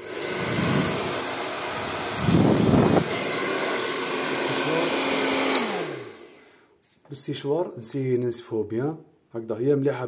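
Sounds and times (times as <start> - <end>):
hair dryer blowing: 0.0 - 6.6
hair dryer motor whine: 0.0 - 6.6.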